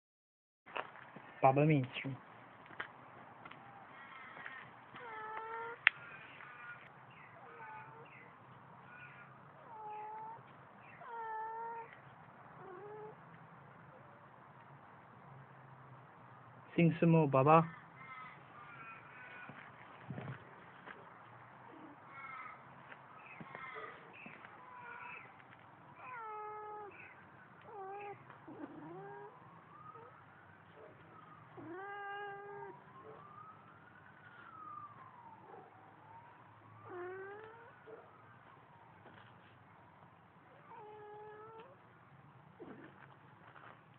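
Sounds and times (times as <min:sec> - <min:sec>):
cat meowing: 0:04.1 - 0:06.8, 0:07.4 - 0:08.2, 0:08.9 - 0:12.0, 0:12.6 - 0:13.2, 0:26.0 - 0:29.3, 0:31.6 - 0:32.8, 0:36.9 - 0:37.7, 0:40.7 - 0:41.8.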